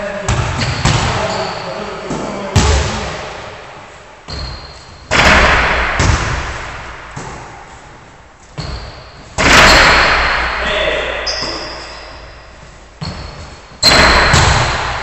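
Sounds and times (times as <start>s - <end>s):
basketballs bouncing in echoing gym: 0.0s - 15.0s.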